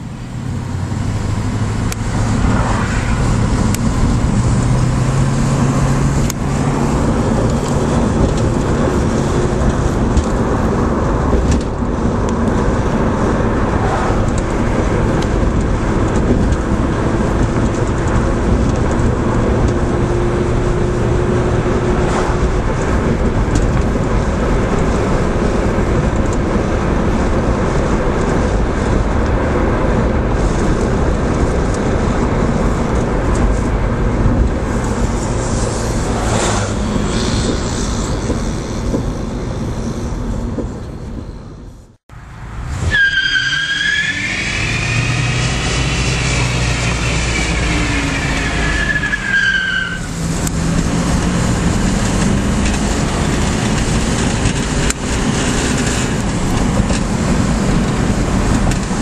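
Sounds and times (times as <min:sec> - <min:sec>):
car engine running: 0:00.0 - 0:41.9
tyre and road noise: 0:00.0 - 0:59.0.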